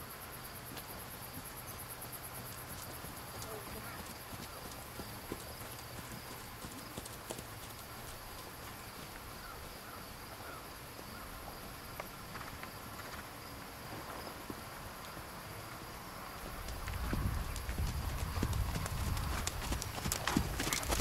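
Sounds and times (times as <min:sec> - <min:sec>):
background hiss: 0:00.0 - 0:21.0
horse hoofbeats on sand: 0:01.3 - 0:09.2, 0:13.9 - 0:21.0.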